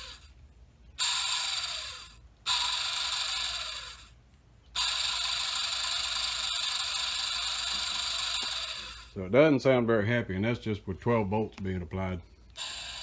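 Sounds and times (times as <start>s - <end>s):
small motor whirring squeal: 12.6s - 13.0s.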